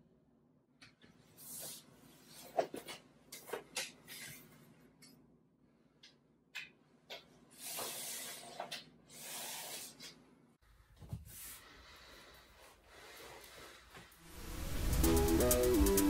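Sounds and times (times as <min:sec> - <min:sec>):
low hum: 0:14.3 - 0:16.0.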